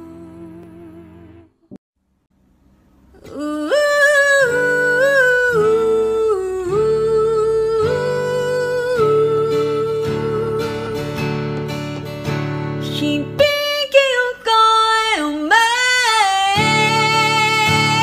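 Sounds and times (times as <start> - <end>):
woman singing long held notes: 0.0 - 1.4, 3.2 - 11.2, 12.9 - 18.0
soft acoustic accompaniment: 0.0 - 1.6, 2.5 - 18.0.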